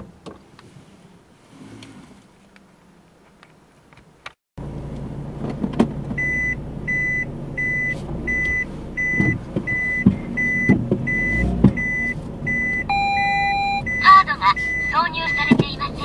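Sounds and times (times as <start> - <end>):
engine running low: 4.6 - 16.0
reversing alarm beeping: 6.2 - 16.0.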